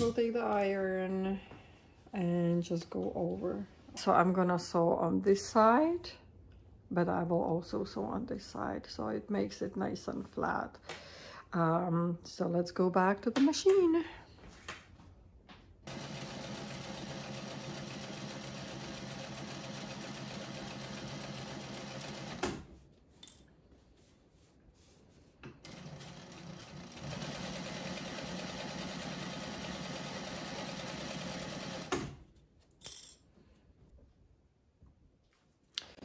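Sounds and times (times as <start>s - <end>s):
sewing machine stitching: 15.9s - 22.7s, 25.6s - 32.2s.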